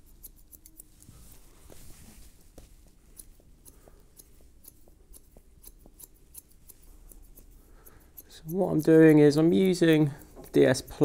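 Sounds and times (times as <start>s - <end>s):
scissors snipping hair: 0.0s - 11.0s.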